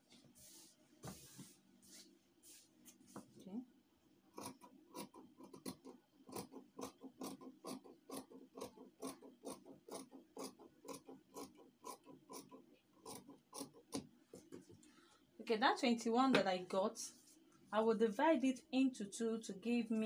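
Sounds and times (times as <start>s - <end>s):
scissors cutting fabric: 4.3s - 14.1s.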